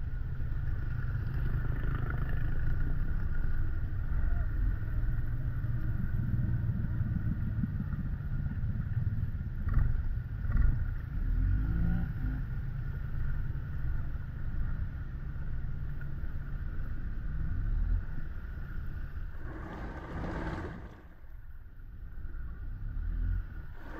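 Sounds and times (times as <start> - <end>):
atv engine running: 0.0 - 23.9
water churning: 19.2 - 21.5.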